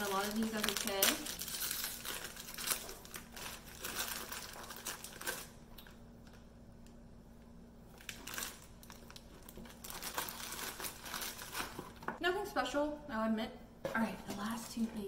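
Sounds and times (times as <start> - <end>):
foil wrapper crinkling: 0.0 - 6.5, 7.9 - 12.1.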